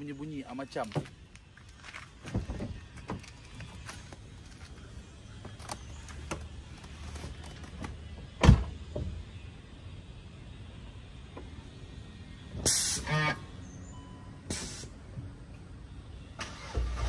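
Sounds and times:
car door shutting with thump: 8.4s - 9.2s.

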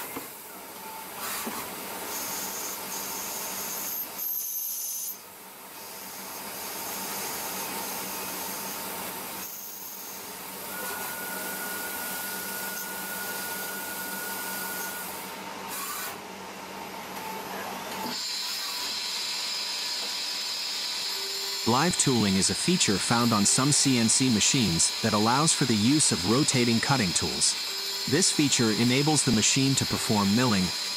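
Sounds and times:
lathe hissing machine noise: 1.2s - 16.2s, 18.0s - 30.9s
thin high whine: 20.9s - 30.9s.

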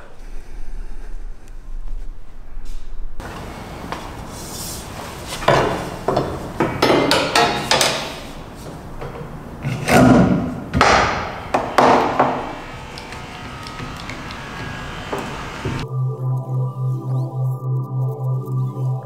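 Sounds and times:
metal frame knocking and rattling: 5.4s - 12.4s.

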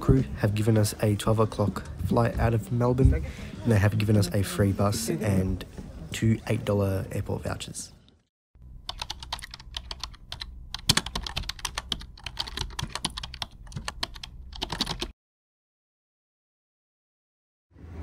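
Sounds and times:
low steady hum: 8.6s - 14.6s.

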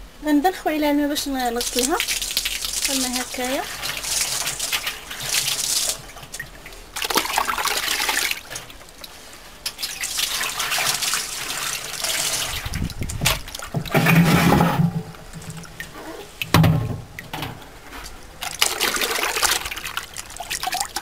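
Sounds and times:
water running onto concrete: 1.2s - 14.3s, 18.4s - 21.0s
water splashing into metal pot: 1.5s - 9.1s, 9.7s - 15.9s.

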